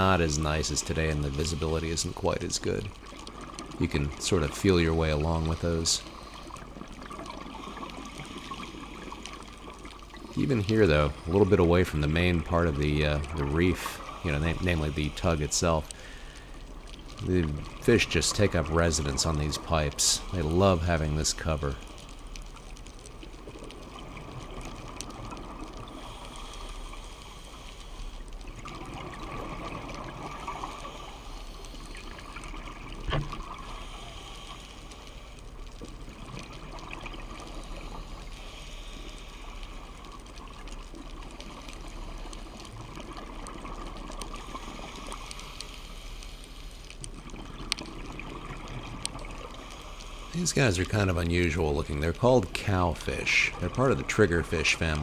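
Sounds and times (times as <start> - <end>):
underwater watery hiss: 0.0 - 11.4, 13.3 - 16.9, 23.4 - 35.4, 36.1 - 51.5
faint crackling: 0.0 - 55.0.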